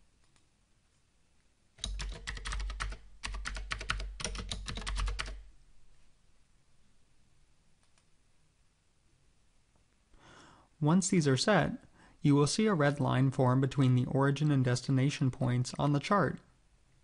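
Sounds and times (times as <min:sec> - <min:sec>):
typing on computer keyboard: 0:01.8 - 0:05.4.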